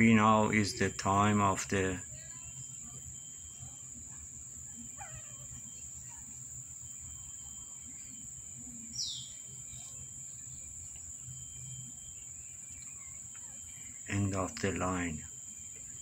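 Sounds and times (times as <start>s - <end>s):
high falling chirp: 0.0s - 16.0s
insect drone: 0.0s - 16.0s.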